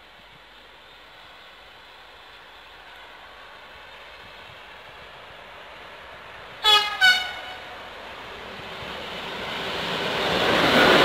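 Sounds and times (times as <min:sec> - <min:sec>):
freight train rumbling: 0:00.0 - 0:11.0
electric locomotive horn blasts: 0:06.6 - 0:07.7.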